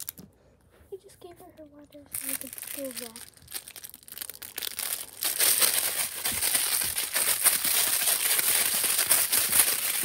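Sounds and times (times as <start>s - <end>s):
crinkling and rustling: 0.0s - 10.0s
sharp crackles: 2.1s - 10.0s.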